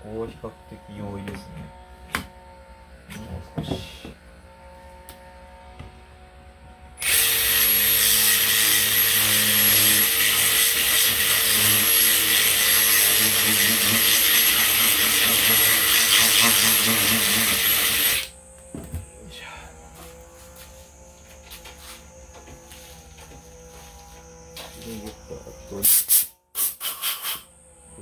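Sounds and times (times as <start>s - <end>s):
cordless drill whining: 7.0s - 18.4s.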